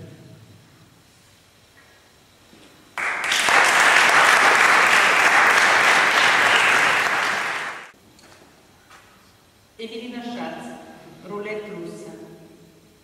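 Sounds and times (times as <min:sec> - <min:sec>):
audience applauding: 0:03.0 - 0:07.9.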